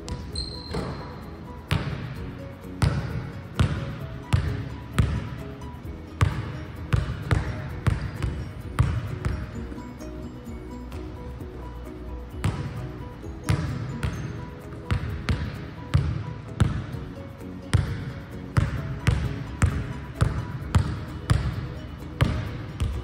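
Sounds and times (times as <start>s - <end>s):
background music: 0.0s - 23.0s
basketball bouncing on wooden floor: 0.1s - 1.1s, 1.7s - 2.1s, 2.8s - 5.3s, 6.2s - 9.5s, 12.4s - 12.7s, 13.5s - 14.3s, 14.9s - 16.8s, 18.6s - 21.6s, 22.2s - 23.0s.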